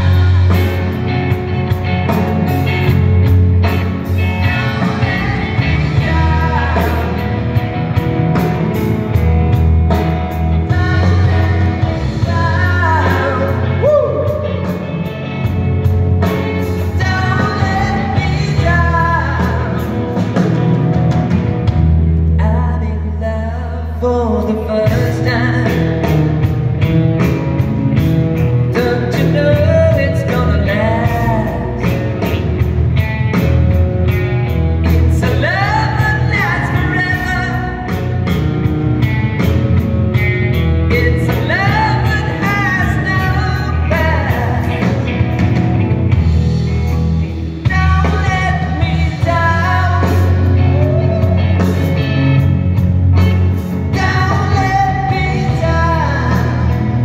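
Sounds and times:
drum kit: 0.0 - 23.2, 24.5 - 57.0
electric guitars: 0.0 - 57.0
steady bass line: 0.0 - 57.0
person singing: 3.9 - 7.6, 10.4 - 15.6, 16.2 - 20.4, 22.3 - 26.2, 28.7 - 32.6, 34.9 - 38.4, 40.9 - 45.6, 47.6 - 52.5, 53.5 - 57.0.

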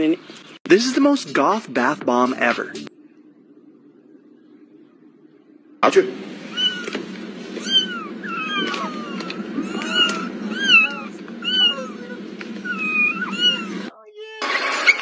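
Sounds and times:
low background noise: 0.0 - 14.6
cat meowing: 6.5 - 7.0, 7.6 - 14.0.

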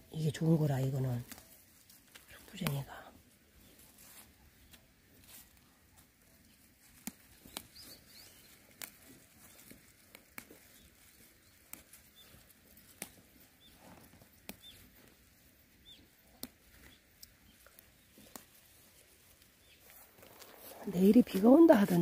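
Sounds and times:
plant stems snapping: 0.8 - 2.8, 6.7 - 15.1, 16.2 - 18.7
faint bird chirps: 7.4 - 9.7, 10.6 - 12.5, 15.8 - 18.4.

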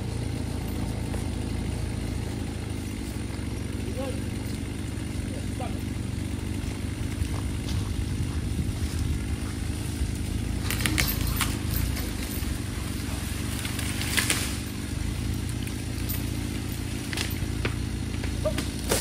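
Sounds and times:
engine running: 0.0 - 19.0
tree cracking and crashing down: 6.7 - 19.0.

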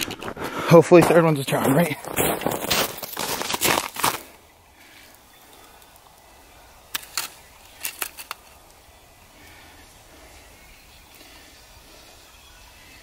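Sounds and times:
footsteps crunching in snow: 0.0 - 4.5.

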